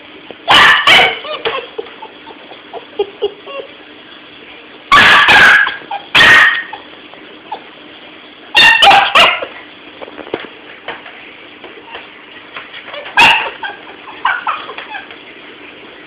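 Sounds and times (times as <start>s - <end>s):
dog barking loudly: 0.4s - 1.7s, 4.9s - 6.9s, 8.6s - 9.5s, 13.0s - 15.1s.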